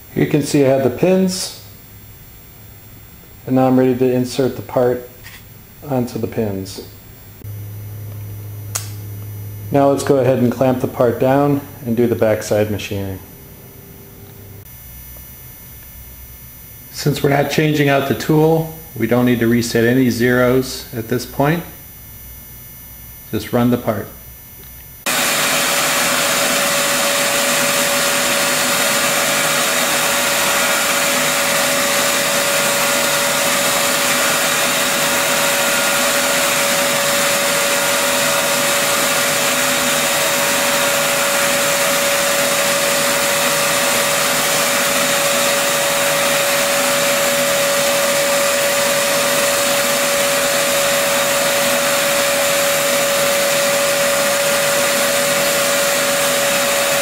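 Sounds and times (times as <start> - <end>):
dust extraction vacuum hiss: 0.0 - 16.0, 16.9 - 21.8, 25.0 - 57.0
router spindle whining: 25.1 - 57.0.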